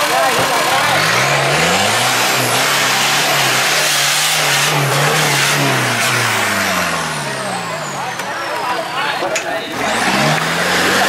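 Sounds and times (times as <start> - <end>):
driveline and tyre noise: 0.0 - 11.0
truck engine revving hard: 0.0 - 11.0.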